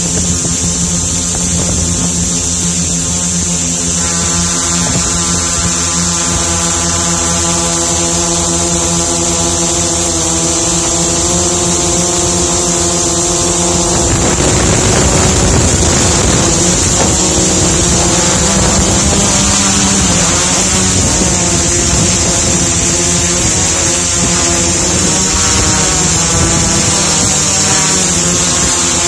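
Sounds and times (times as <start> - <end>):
drone motors buzzing: 0.0 - 29.0
wind rush on microphone: 0.0 - 29.0.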